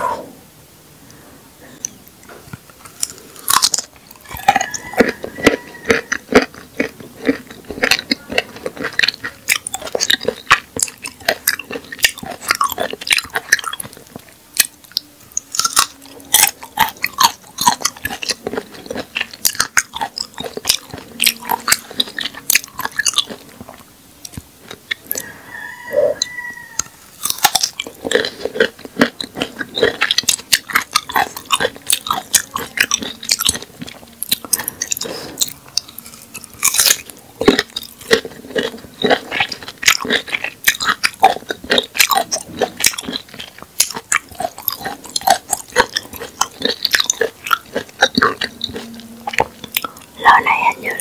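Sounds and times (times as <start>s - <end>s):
mouth clicks: 1.1s - 14.0s
crisp chewing crunches: 1.7s - 51.0s.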